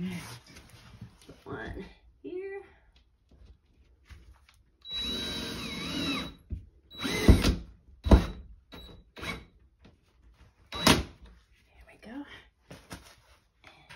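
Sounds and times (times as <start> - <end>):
cordless drill motor: 4.9 - 8.3.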